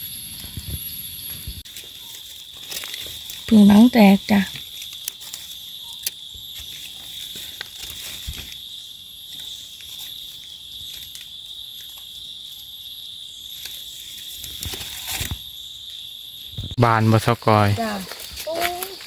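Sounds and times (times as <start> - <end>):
high-pitched insect drone: 0.0 - 19.0
dry leaves crackling and rustling: 1.6 - 12.2, 17.7 - 19.0.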